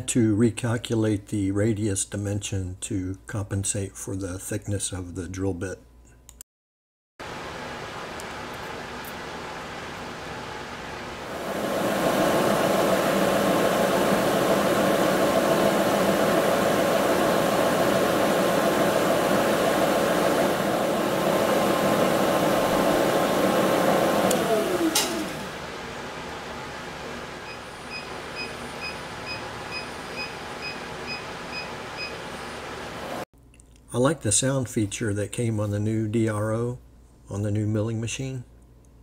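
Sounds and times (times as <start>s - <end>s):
milling machine motor running: 11.2s - 33.2s
digital readout beeping: 27.5s - 32.2s.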